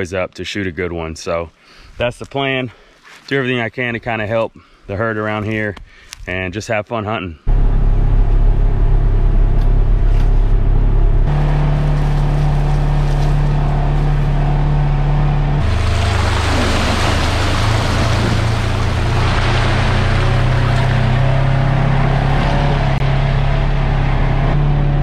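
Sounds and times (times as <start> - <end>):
vehicle engine running: 7.5 - 25.0.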